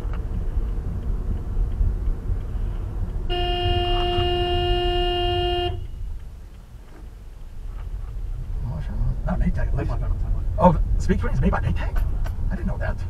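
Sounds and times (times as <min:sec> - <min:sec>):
car rumbling on road: 0:00.0 - 0:13.0
car horn long blast: 0:03.3 - 0:06.0.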